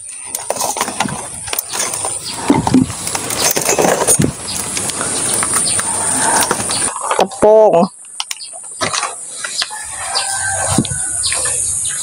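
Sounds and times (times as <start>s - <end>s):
kitchen things clattering: 0.3s - 4.8s.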